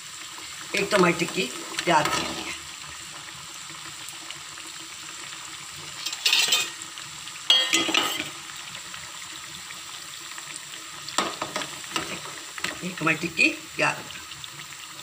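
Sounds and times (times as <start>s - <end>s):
food sizzling in hot oil: 0.0s - 15.0s
metal spoon scraping pan: 6.0s - 6.8s, 7.5s - 8.4s.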